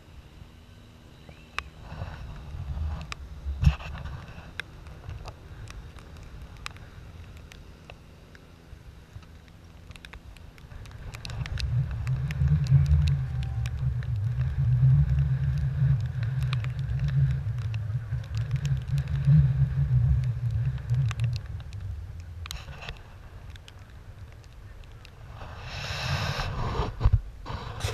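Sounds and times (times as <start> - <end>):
light ticks: 1.2 - 26.1
wind buffeting microphone: 10.6 - 27.9.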